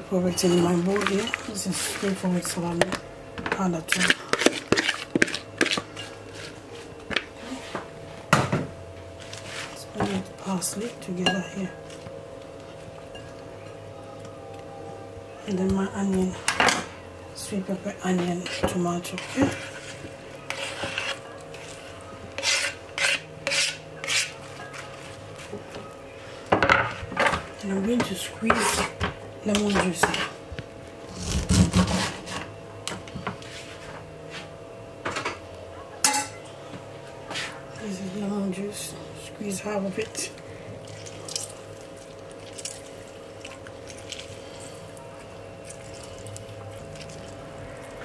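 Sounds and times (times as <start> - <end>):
steady low hum: 0.0 - 48.0
knife scraping on wooden board: 18.4 - 21.2, 22.4 - 24.4, 31.1 - 32.4
lemon squishing: 40.8 - 48.0.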